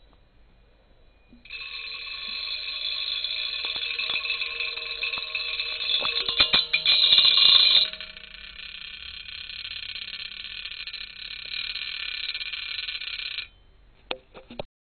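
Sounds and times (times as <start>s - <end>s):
rattling clatters: 1.5s - 11.7s
vibration motor buzzing on metal tines: 1.5s - 13.6s.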